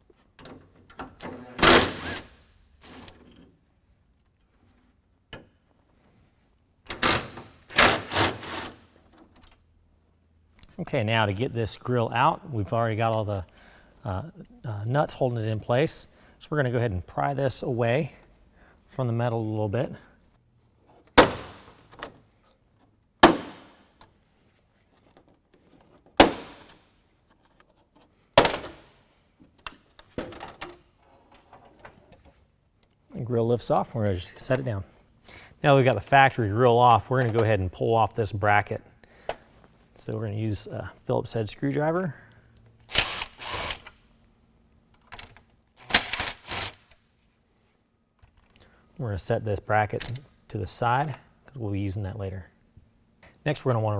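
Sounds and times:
cordless drill running: 42.9s - 43.9s
drill click: 42.9s - 44.0s.

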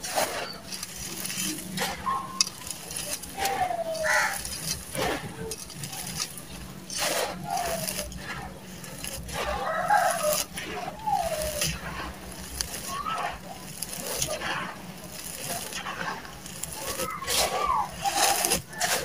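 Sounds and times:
falling animal calls: 0.0s - 6.2s, 9.2s - 14.5s, 16.7s - 19.0s
hands raking through sand: 0.0s - 19.0s
sand pouring from pot: 0.0s - 19.0s.

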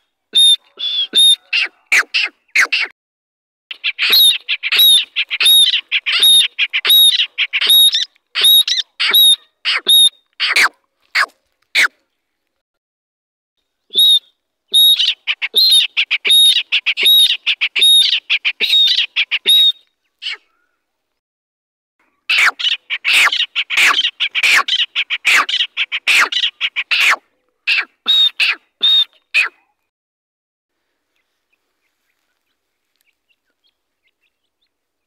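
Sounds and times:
bird chicks chirping: 0.4s - 2.8s, 3.7s - 9.8s, 14.7s - 20.4s.

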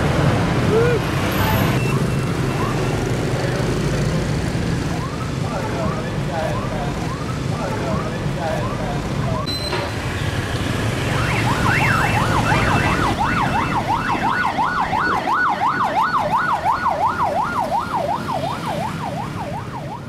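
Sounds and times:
low rumble of street traffic: 0.0s - 20.0s
electronic siren yelping: 1.8s - 3.1s, 10.9s - 20.0s.

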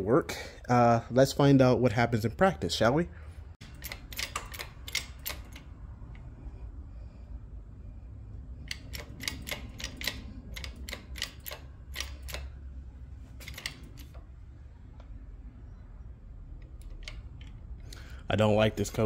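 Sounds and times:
low steady hum: 0.0s - 19.0s
shop press clicking: 3.6s - 5.7s, 8.6s - 12.6s, 13.4s - 14.2s.

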